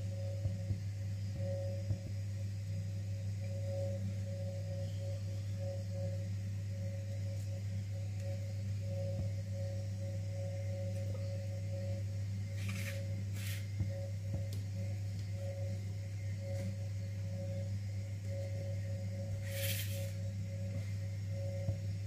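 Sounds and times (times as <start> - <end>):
soft droning background music: 0.0 - 22.0.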